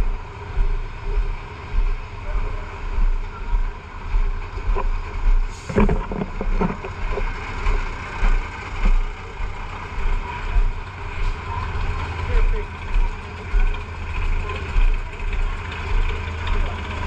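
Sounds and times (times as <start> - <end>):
fire truck engines running: 0.0 - 17.0
microphone wind buffeting: 4.6 - 7.8.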